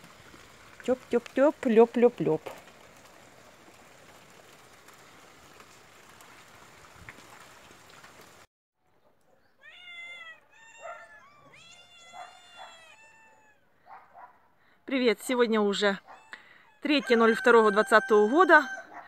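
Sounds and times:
rain pattering: 0.0s - 8.5s
cats meowing: 9.6s - 13.7s, 16.1s - 16.9s.

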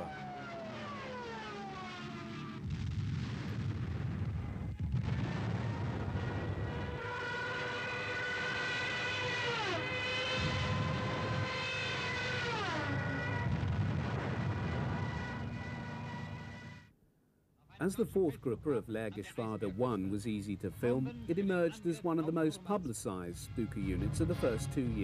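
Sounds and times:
propeller aircraft engines droning: 0.0s - 2.6s, 17.9s - 25.0s
deep rumble: 12.3s - 16.8s.

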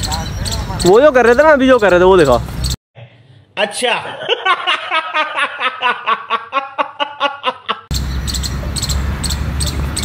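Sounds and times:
man laughing: 4.0s - 7.9s
outdoor rumble: 7.9s - 10.0s.

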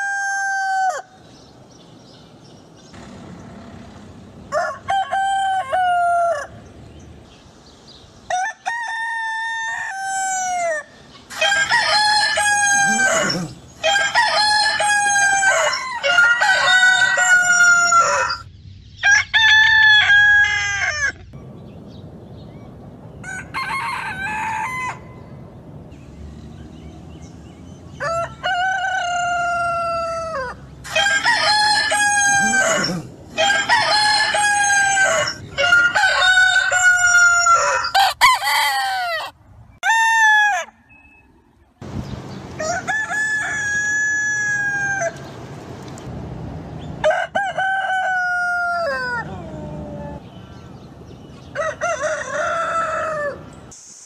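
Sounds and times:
rooster crowing: 0.0s - 1.2s, 4.5s - 6.6s, 8.3s - 21.2s, 23.2s - 25.2s, 28.0s - 40.8s, 42.6s - 45.2s, 47.0s - 50.2s, 51.5s - 53.5s.

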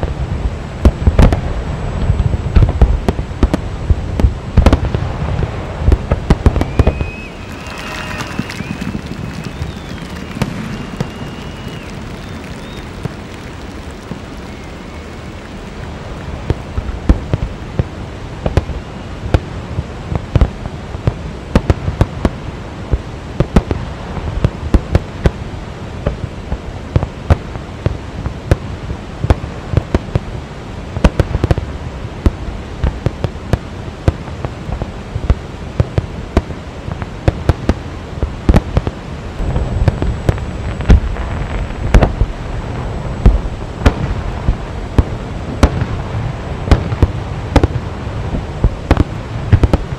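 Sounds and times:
fireworks bangs and crackles: 0.0s - 49.9s
waterfall low rush: 3.7s - 21.5s.

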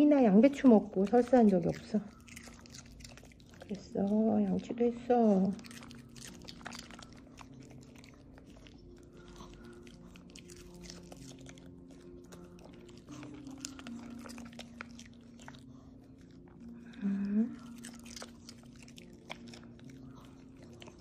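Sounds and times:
dog chewing crunchy food: 0.5s - 21.0s.

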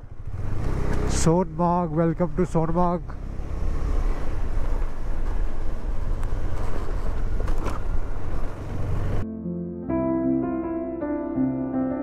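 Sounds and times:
motorcycle low rumble: 0.0s - 9.3s.

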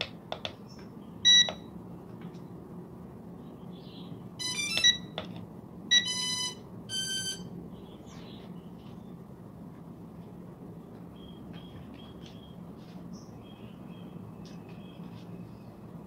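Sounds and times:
electronic power-on beeps: 1.2s - 1.7s, 4.4s - 5.1s, 5.9s - 7.5s.

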